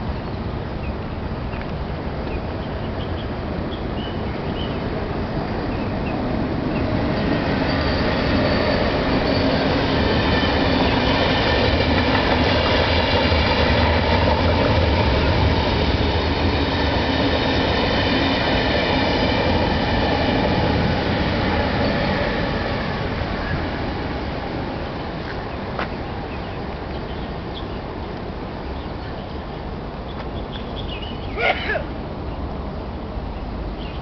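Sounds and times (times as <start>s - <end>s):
train passing with rumble: 0.0s - 34.0s
thin high whine: 6.8s - 12.9s.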